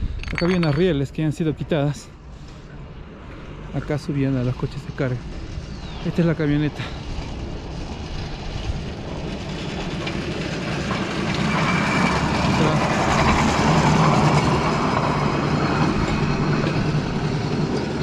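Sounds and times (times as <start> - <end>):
diesel train engine hum: 0.0 - 18.0
train rolling rumble: 0.0 - 18.0.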